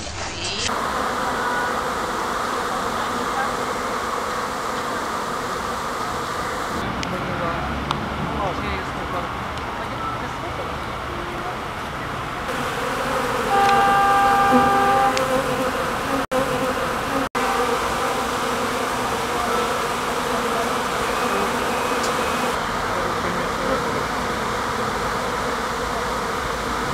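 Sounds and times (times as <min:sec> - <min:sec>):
bees buzzing: 0:00.4 - 0:06.8, 0:12.4 - 0:26.9
short steady tone: 0:13.5 - 0:15.2.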